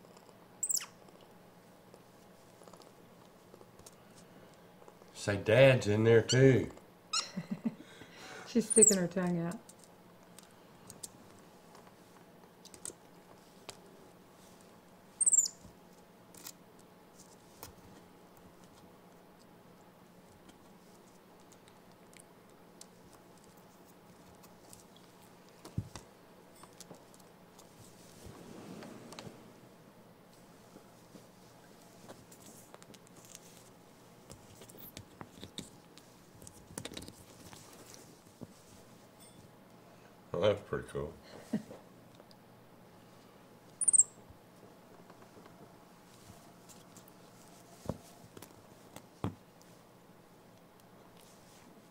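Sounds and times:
baby monkey squeaking: 0.6s - 1.0s, 8.7s - 9.0s, 15.2s - 15.6s, 43.8s - 44.1s.

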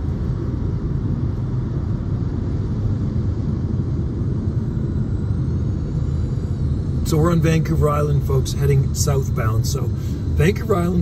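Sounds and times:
road and tyre noise in car: 0.0s - 11.0s.

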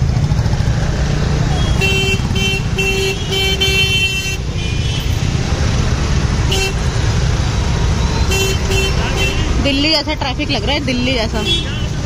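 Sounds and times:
idling engines rumbling: 0.0s - 12.0s
vehicle horns honking: 1.5s - 5.4s, 6.4s - 7.1s, 7.9s - 9.6s, 11.2s - 12.0s.

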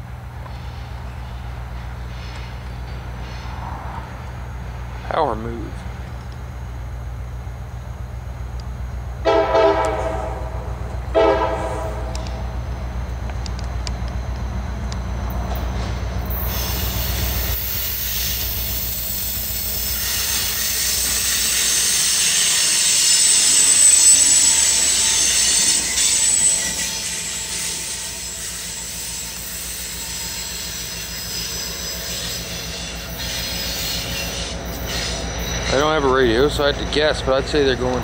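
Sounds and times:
locomotive diesel engine: 0.0s - 38.0s
high-pitched wheel squeal: 16.3s - 36.6s.

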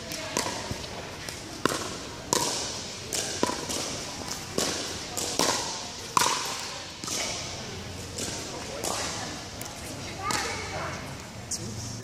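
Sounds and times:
paddles striking plastic ball: 0.3s - 7.3s.

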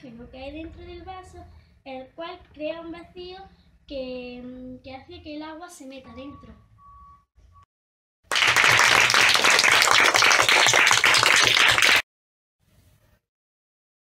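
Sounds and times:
applause: 8.3s - 12.1s.

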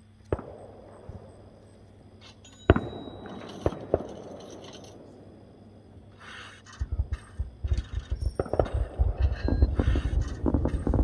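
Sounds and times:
fireworks bangs: 2.7s - 5.2s, 6.2s - 11.0s.

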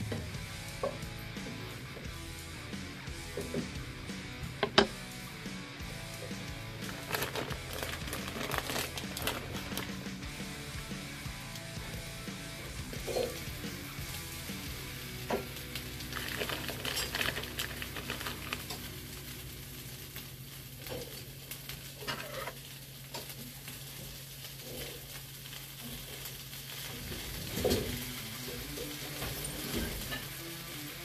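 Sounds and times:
food sizzling in a frying pan: 0.0s - 31.0s
spatula knocking pan: 4.6s - 5.0s
wooden spatula scraping pan: 22.1s - 22.6s.

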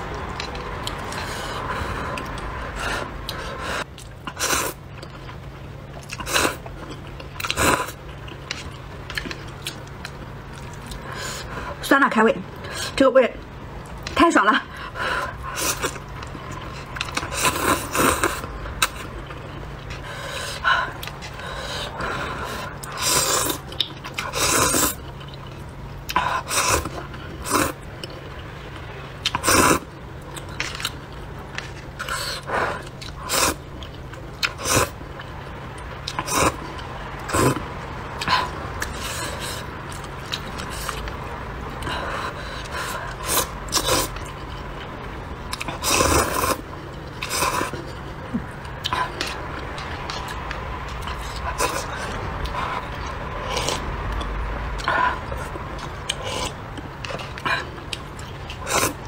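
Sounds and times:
faint steady hum: 0.0s - 59.0s
chewing: 3.2s - 11.6s, 15.3s - 37.6s, 41.8s - 59.0s
slurping noodles: 16.6s - 19.0s, 21.4s - 25.1s, 26.1s - 27.8s, 29.2s - 29.9s, 32.0s - 33.6s, 34.4s - 35.0s, 36.1s - 36.7s, 37.3s - 37.6s, 41.8s - 44.3s, 45.6s - 46.6s, 47.2s - 48.0s, 58.5s - 59.0s.

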